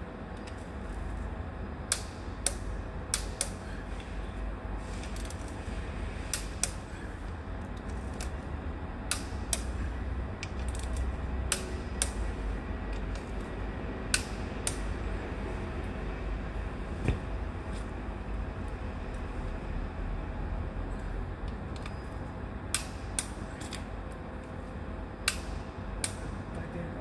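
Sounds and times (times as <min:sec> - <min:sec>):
steady low rumble: 0:00.0 - 0:27.0
sharp mechanical clicks: 0:09.1 - 0:09.7.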